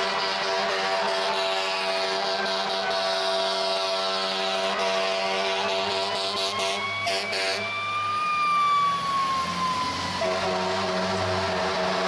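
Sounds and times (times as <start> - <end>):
fire truck horn blaring: 0.0 - 12.0
siren wailing: 5.4 - 12.0.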